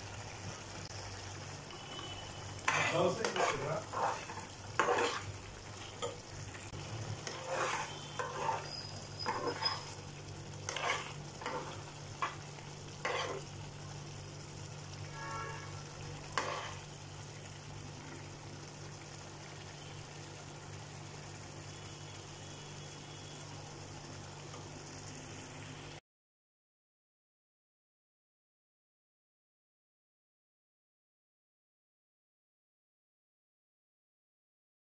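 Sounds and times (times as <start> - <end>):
curry simmering: 0.0 - 26.0
metal spoon scraping a pan: 2.2 - 13.6, 15.0 - 17.0.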